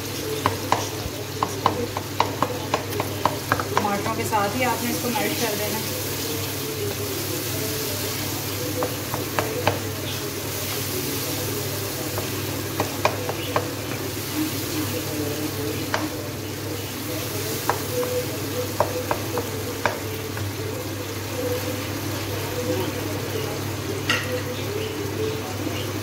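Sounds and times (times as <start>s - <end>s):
food sizzling in a pan: 0.0s - 26.0s
wooden spoon tapping a pan: 0.3s - 4.3s, 8.7s - 10.0s, 12.1s - 14.0s, 15.7s - 16.2s, 16.8s - 20.6s.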